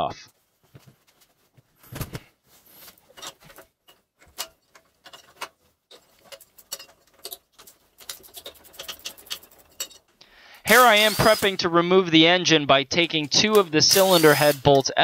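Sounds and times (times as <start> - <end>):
wrench clicking on bolts: 10.7 - 11.6.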